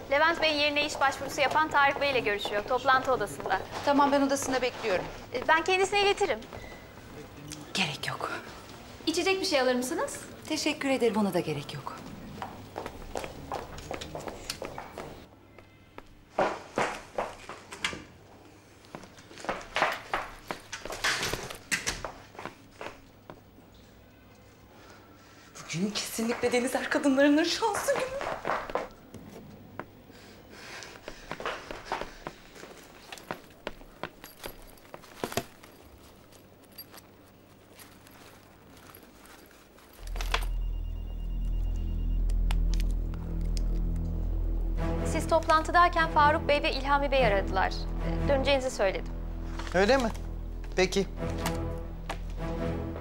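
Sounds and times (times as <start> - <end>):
scuffing noises: 11.9 - 15.3, 18.9 - 23.5, 27.4 - 30.0, 30.6 - 40.6
footsteps on hard floor: 12.0 - 15.3, 16.0 - 18.0, 18.9 - 23.4, 27.7 - 30.0, 30.8 - 35.9, 49.0 - 52.6
rustling movement: 30.3 - 43.9
low droning music: 40.0 - 53.0.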